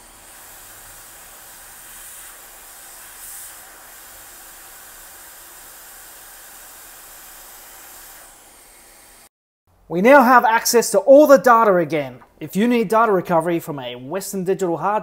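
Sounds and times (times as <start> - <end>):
hot air blower hissing: 0.0 - 9.3.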